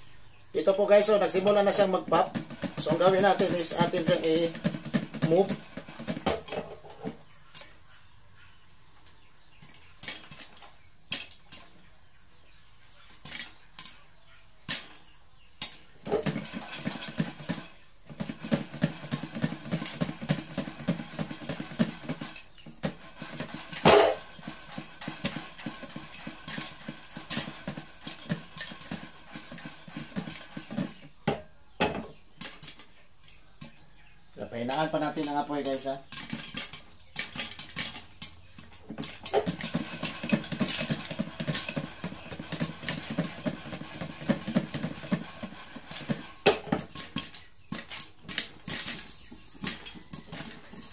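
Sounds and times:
popcorn popping in a pan: 1.0s - 6.8s, 34.7s - 50.9s
pan shaking: 39.0s - 48.0s.

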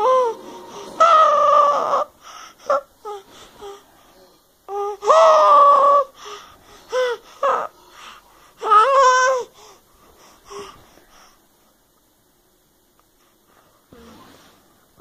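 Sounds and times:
baby squealing and babbling: 1.0s - 2.1s
baby gasping breaths: 6.1s - 8.8s, 9.4s - 11.4s.

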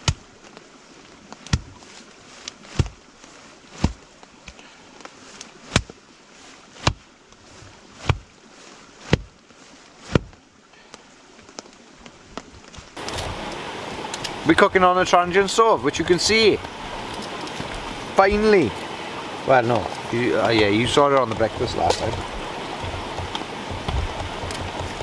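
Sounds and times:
hatchet chopping firewood: 0.0s - 0.3s, 1.4s - 1.8s, 2.7s - 3.0s, 5.7s - 5.9s, 9.0s - 9.3s, 16.6s - 25.0s.

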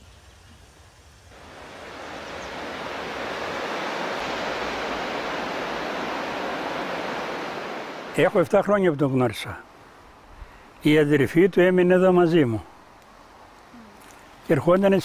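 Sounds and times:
river rushing over rapids: 1.4s - 8.8s.

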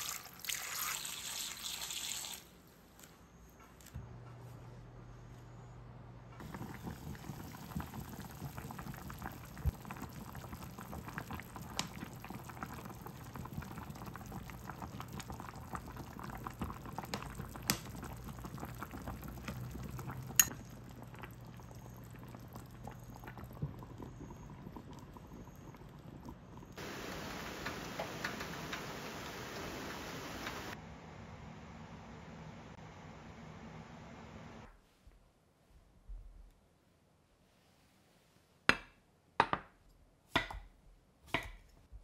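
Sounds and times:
pot of liquid boiling: 0.0s - 2.5s, 6.4s - 30.8s.

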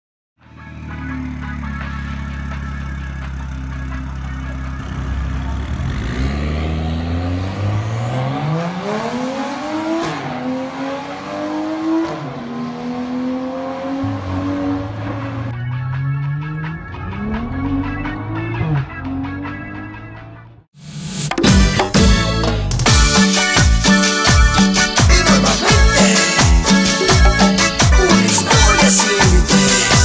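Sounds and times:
car engine revving and accelerating: 0.6s - 20.6s.

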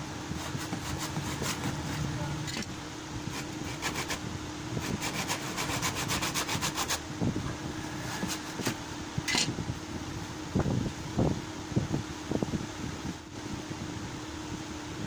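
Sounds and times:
fan hum: 0.0s - 15.0s
hand tool scraping wood: 0.4s - 2.6s, 3.3s - 4.2s, 4.8s - 7.0s, 8.0s - 8.8s.

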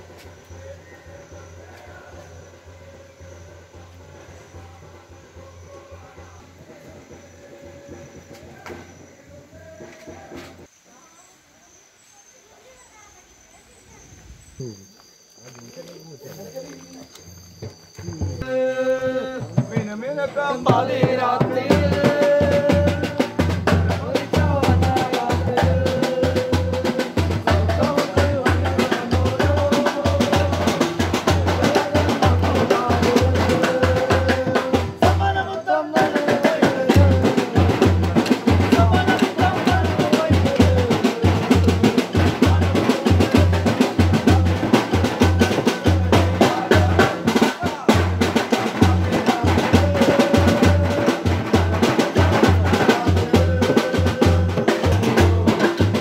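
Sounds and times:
quick drum beat: 20.6s - 56.0s.

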